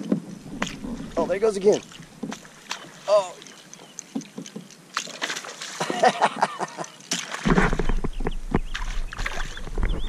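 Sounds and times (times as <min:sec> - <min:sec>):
fish splashing at surface: 0:04.9 - 0:06.0.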